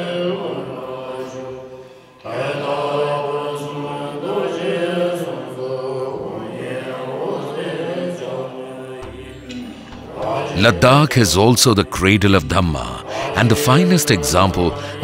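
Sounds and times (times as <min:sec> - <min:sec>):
monks chanting: 0:00.0 - 0:15.0.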